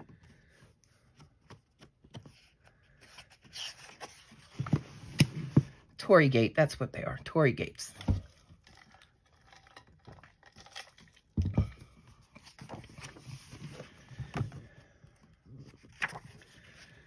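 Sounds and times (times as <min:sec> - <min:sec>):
paper pages rustling: 0:00.2 - 0:05.5, 0:12.2 - 0:14.6, 0:15.5 - 0:17.0.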